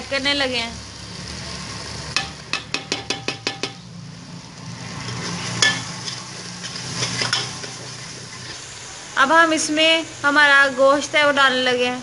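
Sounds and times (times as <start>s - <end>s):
spices sizzling in hot oil: 0.0s - 12.0s
ladle scraping pot: 5.0s - 8.6s.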